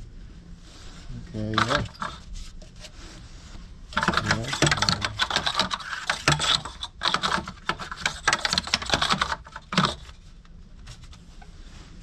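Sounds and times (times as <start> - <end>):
fan clutch clicking and rattling: 1.6 - 2.2, 3.9 - 10.2.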